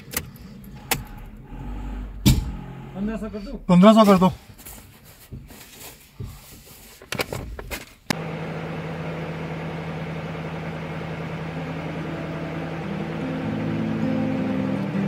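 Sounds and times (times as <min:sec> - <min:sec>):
car engine and road noise: 0:00.0 - 0:15.0
acoustic guitar music: 0:11.6 - 0:15.0.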